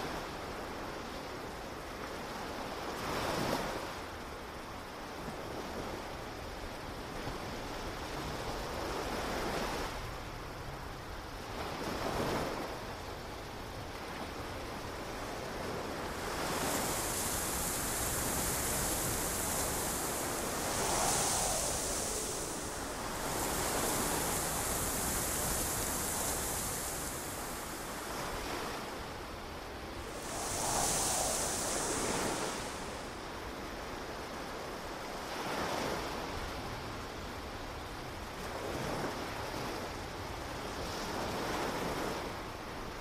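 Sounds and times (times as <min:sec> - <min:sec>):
ocean surf washing: 0:13.3 - 0:35.9
hiss: 0:14.8 - 0:34.2.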